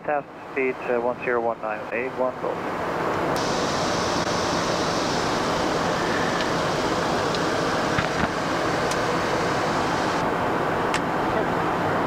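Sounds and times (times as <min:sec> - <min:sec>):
rushing airflow in cockpit: 0:02.6 - 0:12.0.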